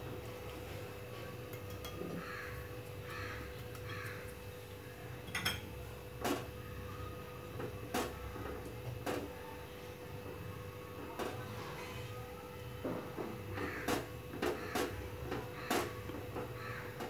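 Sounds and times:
crow cawing: 2.0 - 5.0, 13.6 - 17.0.

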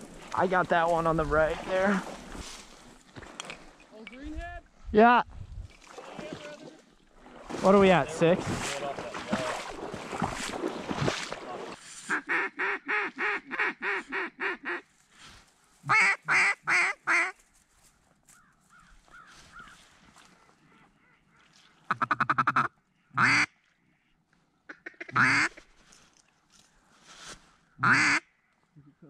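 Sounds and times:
duck call quacks: 12.1 - 14.9, 15.8 - 17.4, 21.9 - 23.5, 24.7 - 25.6, 27.8 - 28.3.

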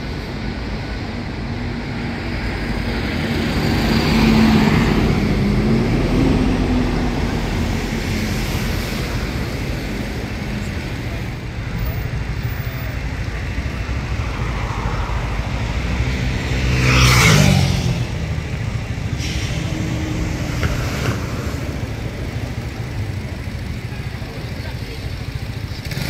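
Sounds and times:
street traffic rumbling: 0.0 - 26.0
vehicle passing close: 12.8 - 23.0.

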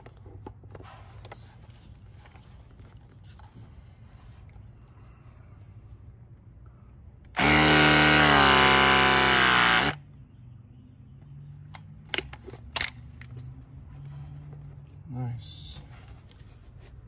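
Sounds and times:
press tool motor whining: 7.4 - 10.0.

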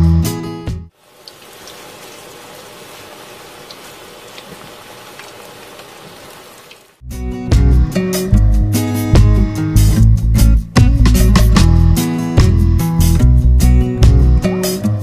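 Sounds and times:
deep-frying sizzle with pops: 1.0 - 6.9
guitar music: 7.0 - 15.0.

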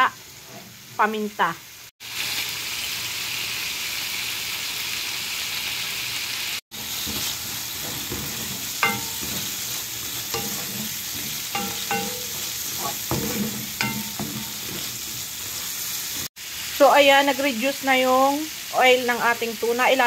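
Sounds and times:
food sizzling in oil: 0.0 - 20.0
wooden spoon scraping pan: 6.7 - 16.3
spoon clanking against pan: 6.8 - 15.8.

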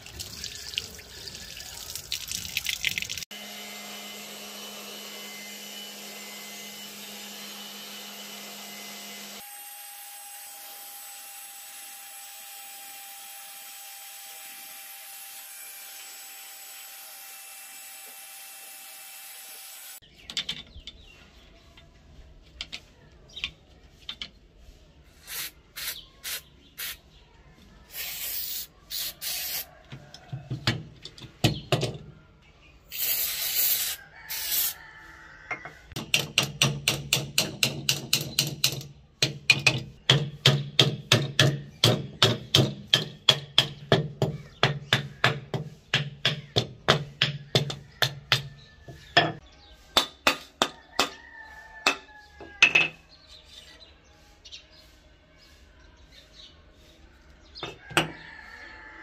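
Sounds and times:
faint birds chirping: 20.0 - 33.2, 34.0 - 35.9, 43.8 - 50.0, 50.8 - 59.0.

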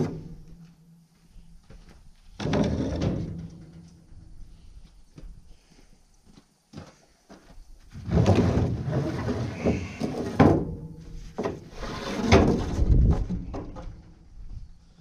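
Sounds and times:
boards knocking and clattering: 11.4 - 14.1.

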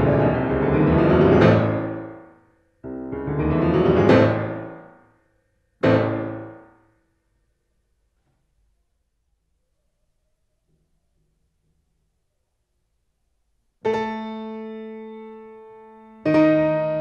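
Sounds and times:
grand piano playing: 0.0 - 5.0, 5.8 - 6.7, 13.9 - 17.0.

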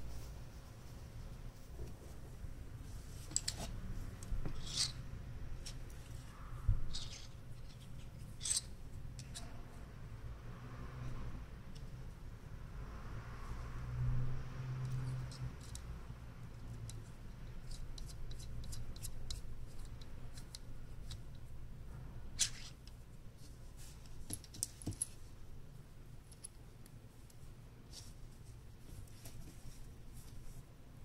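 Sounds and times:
small metal parts clicking: 6.9 - 9.5.

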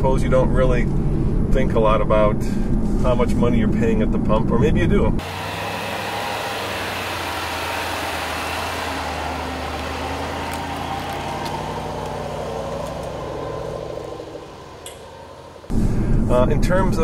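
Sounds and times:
car engine running at low revs: 2.5 - 16.3.

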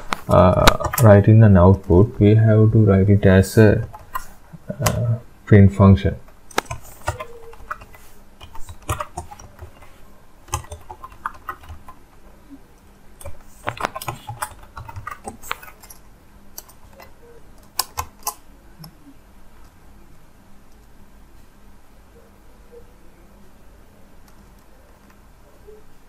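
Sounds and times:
computer keyboard typing: 0.3 - 2.0, 3.8 - 5.0, 6.5 - 12.0, 13.2 - 16.0, 16.6 - 19.0.

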